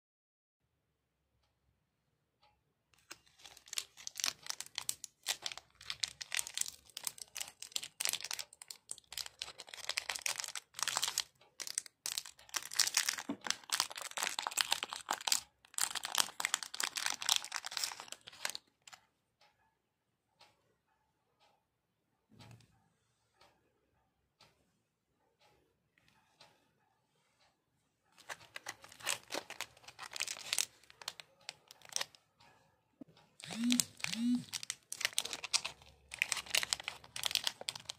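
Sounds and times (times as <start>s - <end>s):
plastic wrapper crinkling and tearing: 3.0s - 19.0s, 28.2s - 32.2s, 33.4s - 37.9s.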